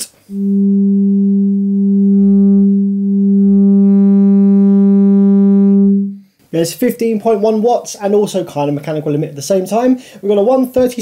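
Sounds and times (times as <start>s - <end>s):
subwoofer sine test tone: 0.0s - 6.2s.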